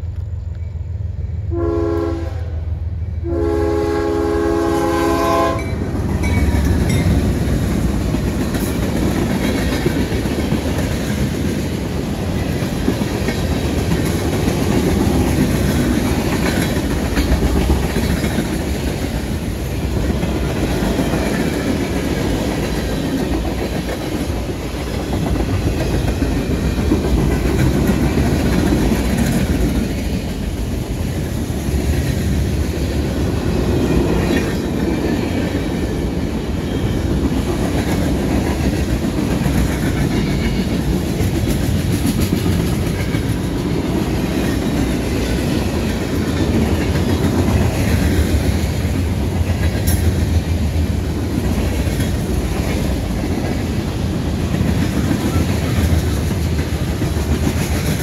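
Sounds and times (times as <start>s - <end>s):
freight train wheels rumbling on rails: 0.0s - 58.0s.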